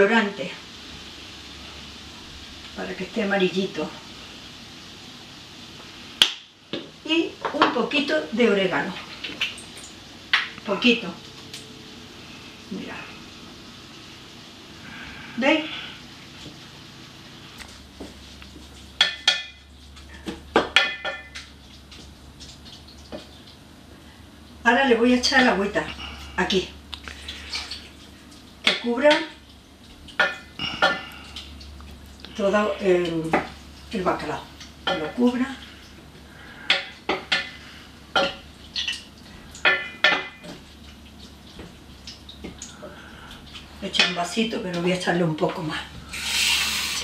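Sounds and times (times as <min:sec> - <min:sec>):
water pouring: 0:46.0 - 0:47.0.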